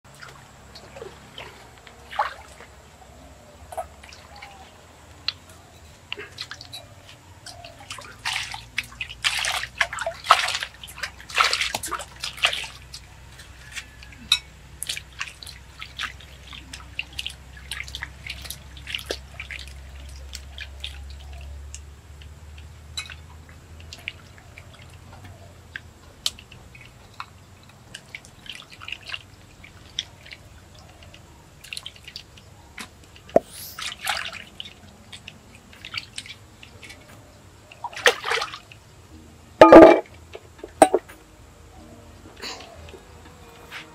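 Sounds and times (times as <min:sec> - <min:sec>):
water splashing in metal bowl: 0:03.7 - 0:21.9, 0:37.7 - 0:38.8, 0:39.6 - 0:41.1.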